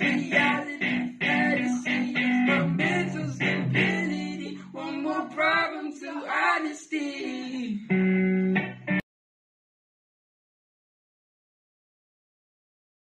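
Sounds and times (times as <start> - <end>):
electric guitar chords: 0.0 - 4.6, 7.9 - 9.0
person singing: 0.0 - 8.0.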